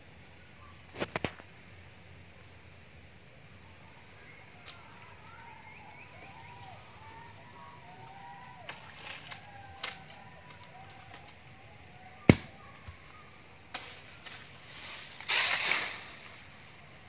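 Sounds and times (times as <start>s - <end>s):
faint bird calls: 3.7s - 17.0s
sharp knocks and cracks: 12.3s - 13.0s.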